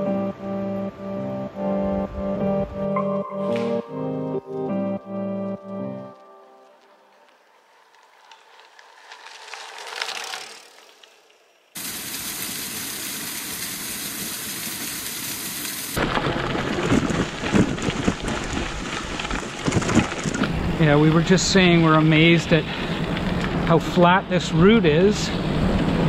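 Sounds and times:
music: 0.0 - 7.3
loud steady hiss: 11.8 - 16.0.

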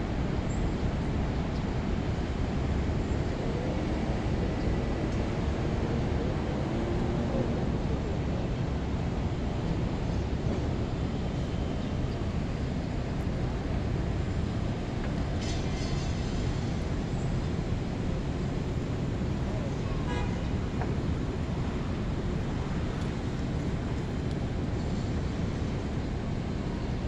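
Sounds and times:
distant city traffic: 0.0 - 27.0.

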